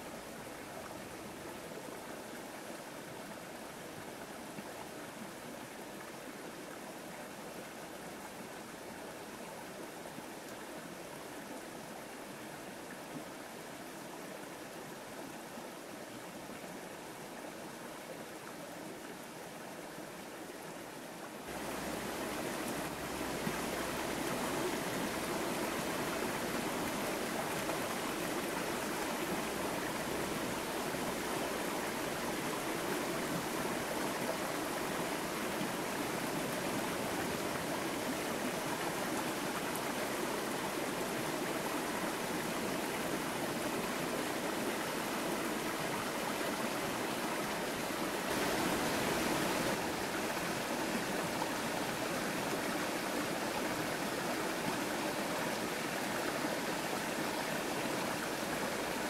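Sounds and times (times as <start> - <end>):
running water rushing: 20.5 - 59.0.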